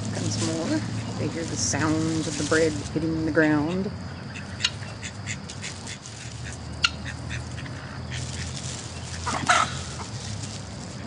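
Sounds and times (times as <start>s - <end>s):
chickens clucking: 0.2s - 11.0s
loud chicken call: 9.2s - 10.0s.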